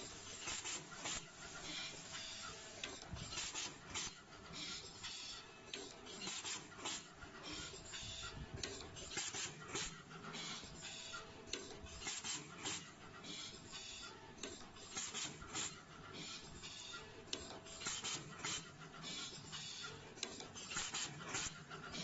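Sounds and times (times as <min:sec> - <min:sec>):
pneumatic hisses: 0:00.0 - 0:05.2, 0:06.2 - 0:08.2, 0:09.1 - 0:11.0, 0:12.0 - 0:14.1, 0:14.8 - 0:16.9, 0:17.7 - 0:19.8, 0:20.6 - 0:21.6
machine clattering clicks: 0:08.6 - 0:13.8.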